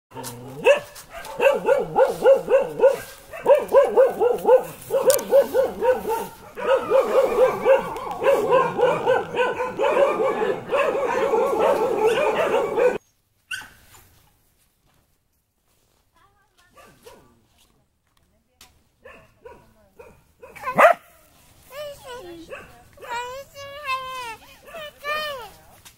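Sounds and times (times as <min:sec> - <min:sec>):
puppy yapping: 0:00.2 - 0:13.8, 0:20.4 - 0:21.1.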